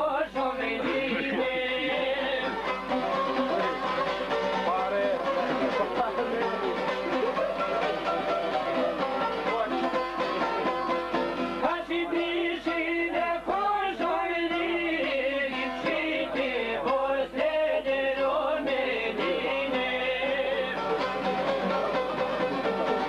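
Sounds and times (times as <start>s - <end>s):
man singing: 0.0s - 2.6s, 11.6s - 20.8s
plucked lutes playing folk song: 0.0s - 23.0s.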